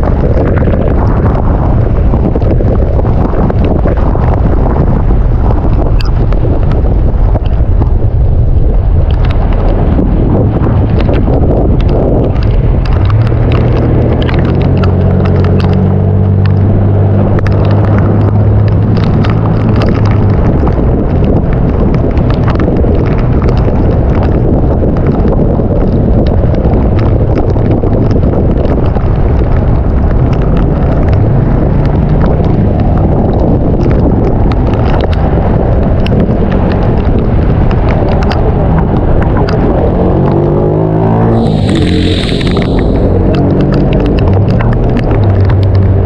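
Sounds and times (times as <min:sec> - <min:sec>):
rain spattering: 0:00.0 - 0:46.0
wind buffeting microphone: 0:00.0 - 0:46.0
vehicle engine humming: 0:29.1 - 0:46.0.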